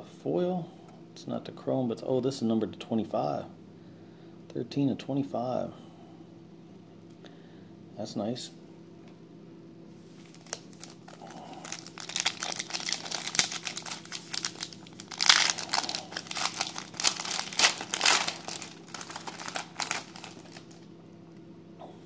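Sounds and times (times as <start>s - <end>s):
foil wrapper crinkling: 10.2s - 20.8s.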